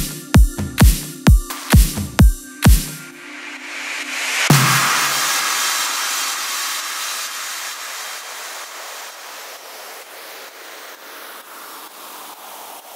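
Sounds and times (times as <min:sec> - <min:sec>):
electronic hit: 0:04.5 - 0:06.3
white noise hiss: 0:04.5 - 0:12.9.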